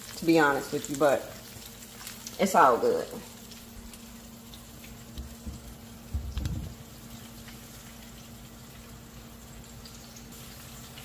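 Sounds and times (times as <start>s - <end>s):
oil sizzling: 0.0s - 11.0s
low thump: 5.4s - 6.8s.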